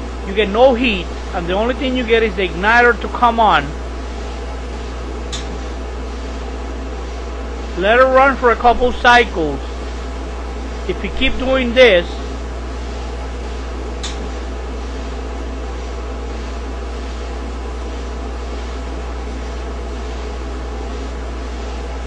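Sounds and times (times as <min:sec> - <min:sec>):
clothes dryer humming: 0:00.0 - 0:22.0
brief click: 0:14.0 - 0:14.2.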